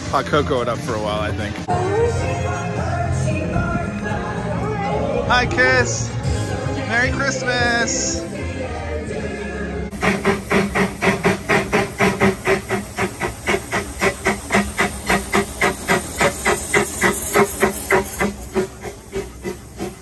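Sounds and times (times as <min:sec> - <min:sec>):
steam hissing: 0:09.9 - 0:20.0
steam locomotive chuffing: 0:09.9 - 0:20.0.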